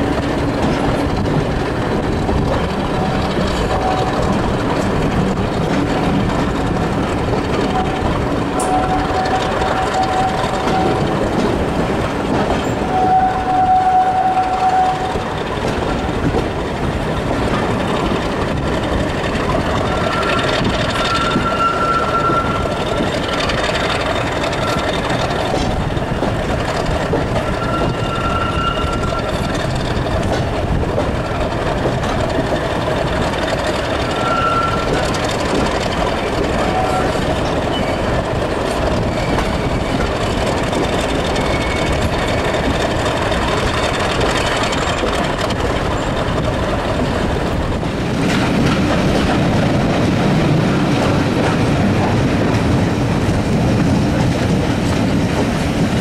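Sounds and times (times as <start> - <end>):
train rumbling on rails: 0.0 - 56.0
high wheel squeals: 7.6 - 11.2, 12.6 - 15.2, 19.7 - 25.8, 27.2 - 29.8, 33.9 - 35.6, 36.4 - 43.6.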